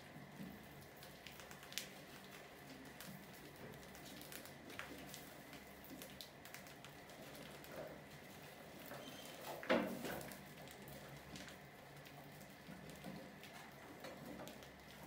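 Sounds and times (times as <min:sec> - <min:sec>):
rodent claws pattering on plastic: 0:00.5 - 0:08.6.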